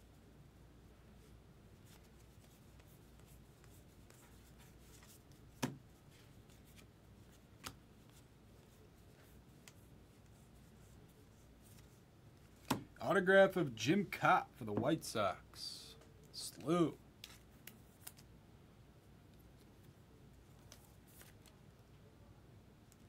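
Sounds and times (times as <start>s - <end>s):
cards rustling and sliding: 1.8s - 12.9s, 16.4s - 18.3s, 19.4s - 21.6s.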